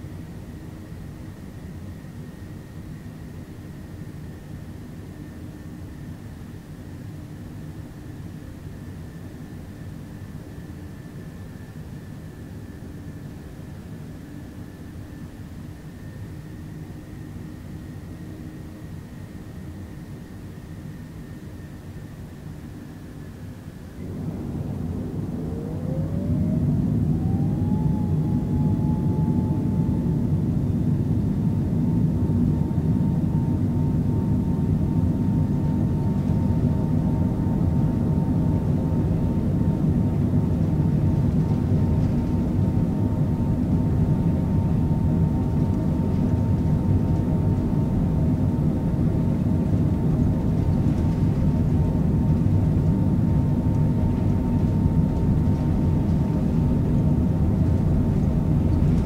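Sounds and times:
jet engines spooling up: 0:23.8 - 0:59.0.

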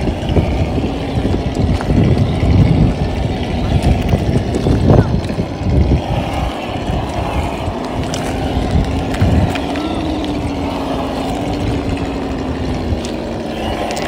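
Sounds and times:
simulated engine burble: 0:00.0 - 0:14.0.

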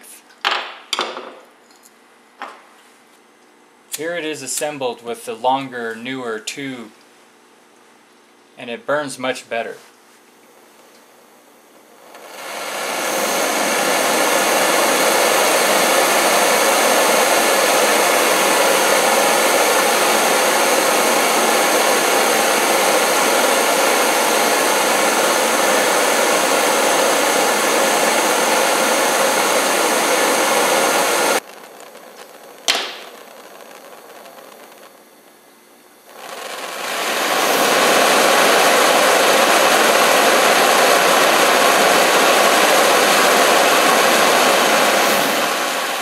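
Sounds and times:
gas burner hissing: 0:11.8 - 0:46.0.

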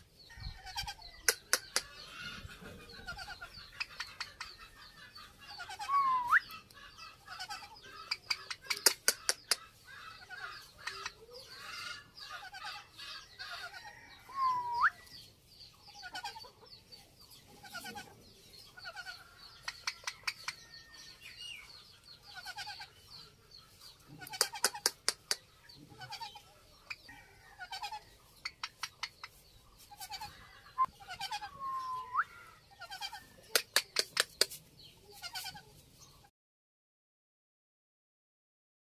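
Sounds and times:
parrots chattering and clucking: 0:00.0 - 0:36.3
bursts of sharp clicks: 0:08.1 - 0:09.6, 0:33.6 - 0:34.6.

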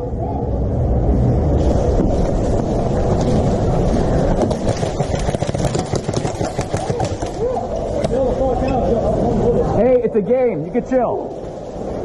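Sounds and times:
wind rumble on microphone: 0:00.0 - 0:06.1.

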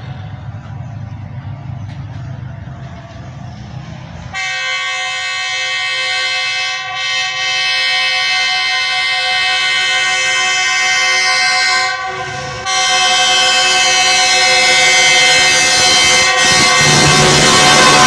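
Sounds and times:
diesel locomotive horn: 0:04.3 - 0:18.0.

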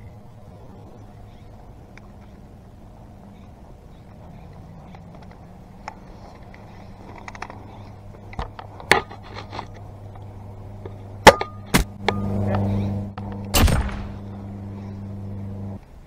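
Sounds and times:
airsoft rifle shot: 0:13.5 - 0:14.2.

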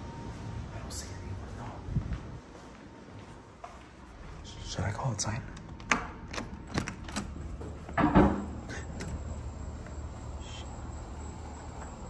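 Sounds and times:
low background hum: 0:00.0 - 0:12.0
door latch clicking: 0:05.6 - 0:07.4
door swinging open: 0:05.6 - 0:09.2.

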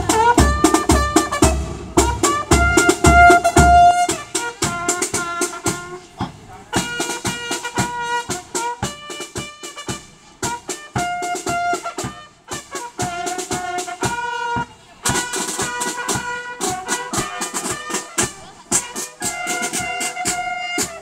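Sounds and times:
bass and snare drum beat: 0:00.0 - 0:21.0
bugles holding notes: 0:00.0 - 0:21.0.

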